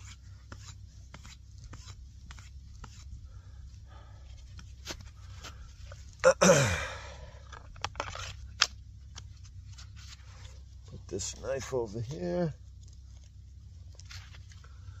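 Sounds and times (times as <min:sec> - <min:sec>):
man grunting exhale: 0:06.3 - 0:07.4.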